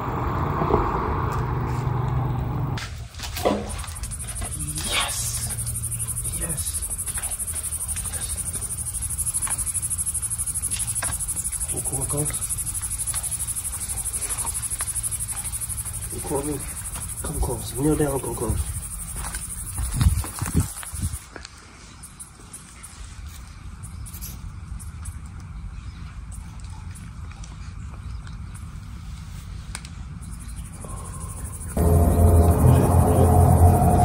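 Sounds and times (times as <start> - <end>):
low rumble: 0.0 - 2.8, 30.9 - 34.0
high-pitched insect chorus: 3.7 - 25.1, 30.3 - 34.0.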